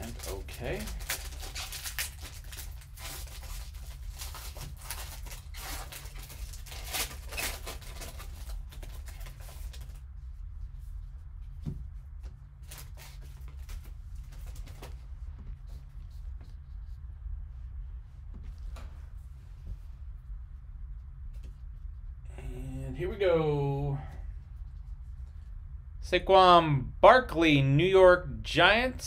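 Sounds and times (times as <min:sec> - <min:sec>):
foil wrapper crackling and tearing: 0:00.0 - 0:10.0.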